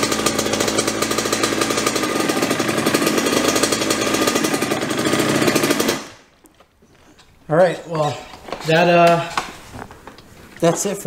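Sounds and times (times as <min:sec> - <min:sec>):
dirt bike engine running: 0:00.0 - 0:06.2.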